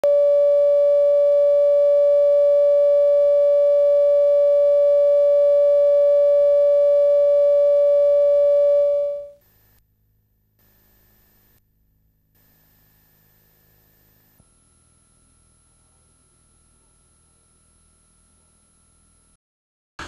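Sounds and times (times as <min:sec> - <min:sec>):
electronic test tone: 0:00.0 - 0:09.4
faint hum: 0:00.0 - 0:09.6, 0:13.7 - 0:19.4.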